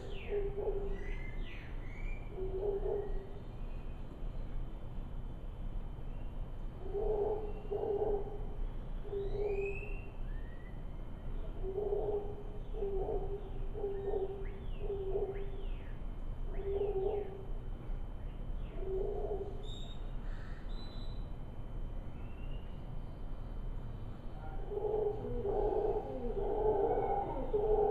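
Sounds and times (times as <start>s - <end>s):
howler monkeys calling: 0.0s - 3.5s, 6.8s - 10.8s, 11.4s - 17.6s, 18.6s - 21.2s, 24.3s - 27.9s
birds chirping and whistling: 9.1s - 10.8s.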